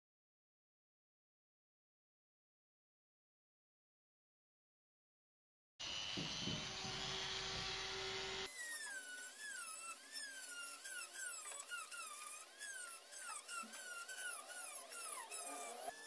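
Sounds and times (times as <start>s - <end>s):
rotary tool grinding wood: 5.8s - 16.0s
rotary tool high whine: 5.8s - 16.0s.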